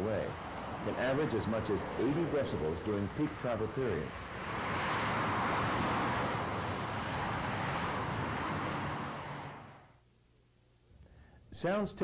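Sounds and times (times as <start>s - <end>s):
freeway traffic rushing: 0.0s - 10.0s.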